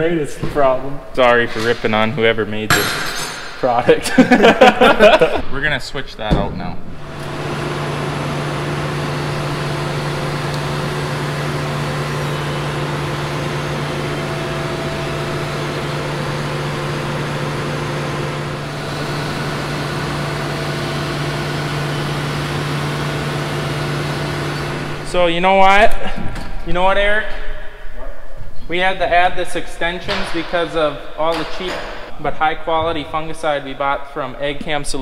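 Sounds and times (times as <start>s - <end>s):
combine engine humming: 6.9s - 25.4s.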